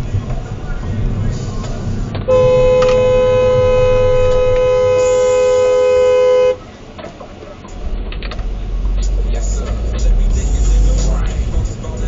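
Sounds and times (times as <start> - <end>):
road noise: 0.0 - 12.0
car horn blast: 2.3 - 6.7.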